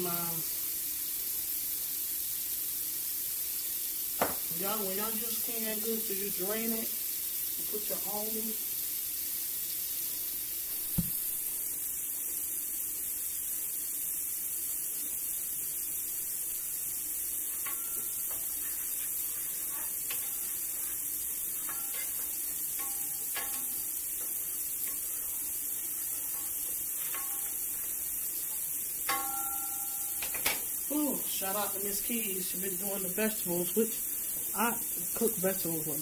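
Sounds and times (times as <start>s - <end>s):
food sizzling in a pot: 0.0s - 36.0s
sharp knock: 10.9s - 11.2s
utensil clinking against pot: 21.6s - 23.9s, 29.0s - 30.5s.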